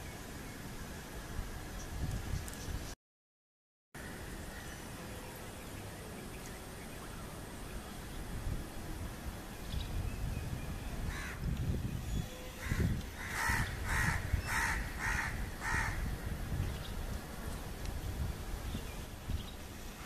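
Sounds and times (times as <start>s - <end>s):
bird calling: 12.1s - 16.1s.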